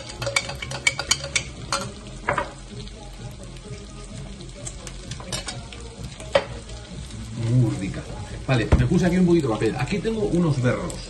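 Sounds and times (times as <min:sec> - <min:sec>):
metal spoon clinking against glass: 0:00.0 - 0:02.4, 0:05.2 - 0:05.6
chicken sizzling in a pan: 0:00.0 - 0:11.0.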